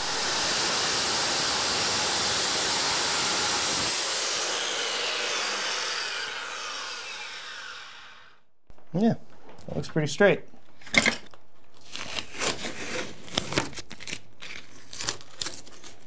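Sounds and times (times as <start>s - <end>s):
circular saw cutting wood: 0.0s - 8.4s
saw blade winding down: 0.0s - 8.4s.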